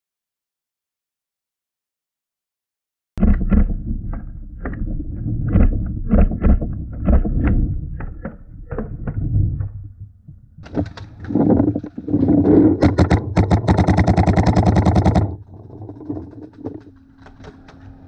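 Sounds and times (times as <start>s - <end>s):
paintballs hitting wooden barricades: 10.6s - 18.0s
paintball guns firing: 12.8s - 15.4s.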